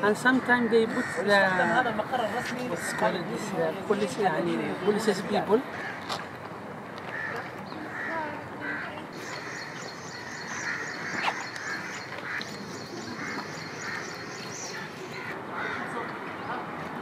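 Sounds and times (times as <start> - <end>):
birds calling: 7.1 - 17.0.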